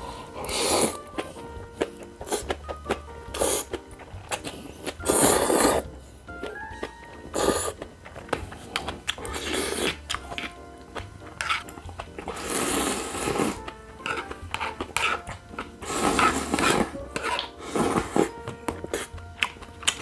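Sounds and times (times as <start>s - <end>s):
person slurping noodles: 0.0s - 1.0s, 3.3s - 5.9s, 7.3s - 7.8s, 9.2s - 10.5s, 12.2s - 19.1s.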